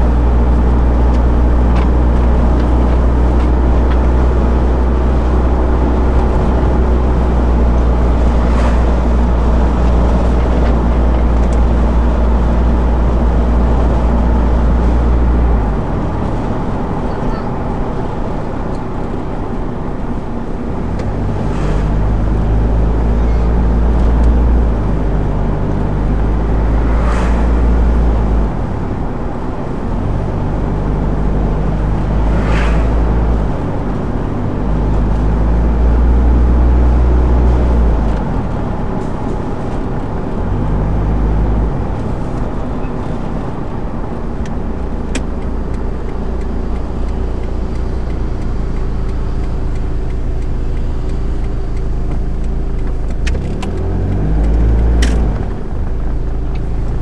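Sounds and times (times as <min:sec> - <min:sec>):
car road and engine noise: 0:00.0 - 0:57.0
brief whooshes: 0:32.3 - 0:33.1.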